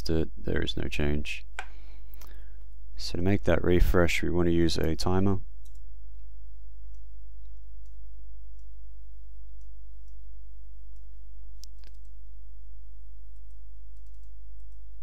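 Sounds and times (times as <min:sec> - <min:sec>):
computer mouse clicks: 0:05.6 - 0:05.9, 0:10.9 - 0:12.2, 0:13.4 - 0:14.8.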